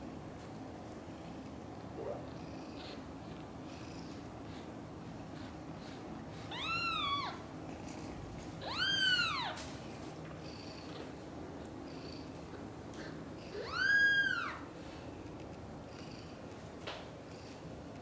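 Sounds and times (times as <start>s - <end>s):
kitten meowing: 8.6s - 9.6s.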